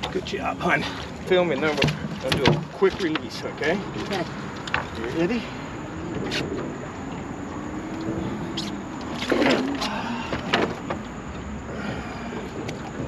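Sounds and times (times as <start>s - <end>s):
steady outdoor hiss: 0.0s - 13.0s
sharp knocks on boat deck: 1.6s - 3.3s.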